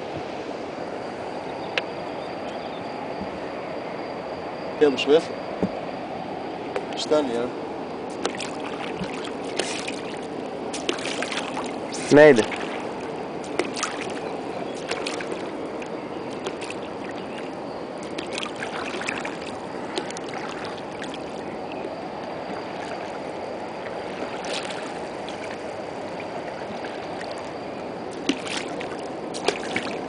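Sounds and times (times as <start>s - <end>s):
flowing water rushing: 5.8s - 30.0s
paddle pulling through water: 8.1s - 30.0s
water splashes: 8.1s - 30.0s.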